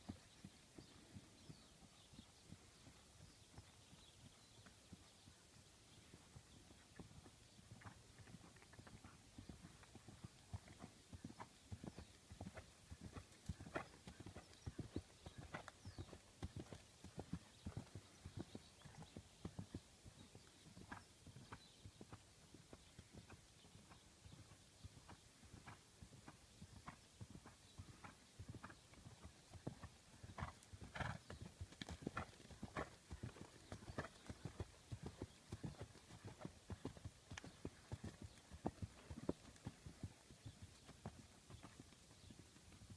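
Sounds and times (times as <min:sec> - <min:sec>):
horse hoofbeats on grass: 0:25.1 - 0:42.9.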